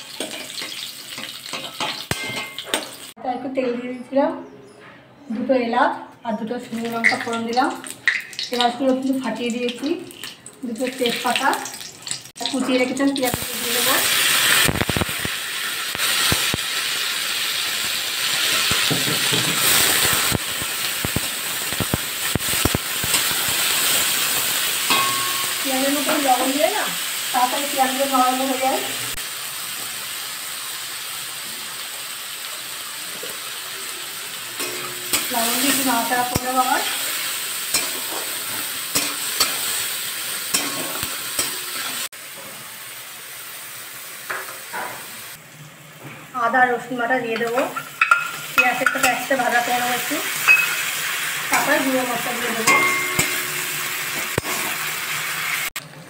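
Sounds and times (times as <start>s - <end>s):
onions sizzling in hot oil: 0.0s - 3.2s, 6.8s - 55.8s
metal spatula scraping a pan: 40.5s - 42.1s, 52.6s - 55.1s.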